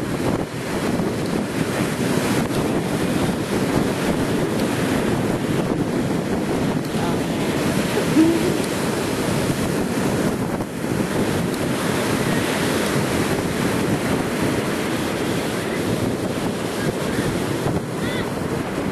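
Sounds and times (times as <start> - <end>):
ocean surf washing: 0.0 - 18.9
wind buffeting microphone: 0.0 - 18.9.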